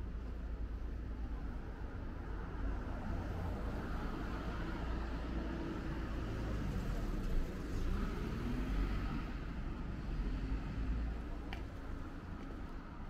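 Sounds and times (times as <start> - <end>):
cars and truck driving past: 2.8 - 11.4.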